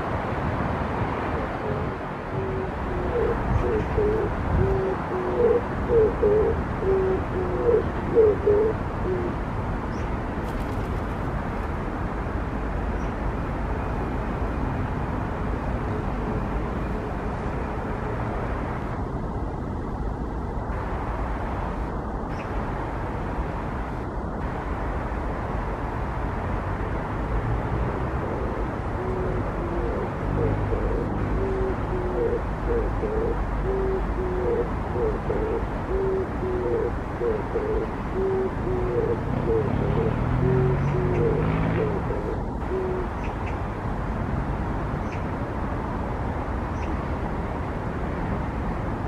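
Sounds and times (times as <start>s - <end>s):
dove cooing: 1.6s - 9.4s, 28.2s - 43.4s
steady low rumble: 15.2s - 38.1s.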